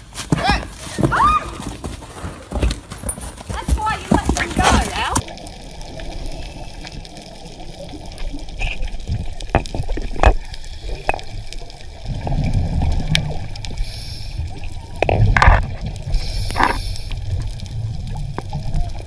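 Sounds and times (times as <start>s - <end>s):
underwater bubbling: 5.2s - 19.0s.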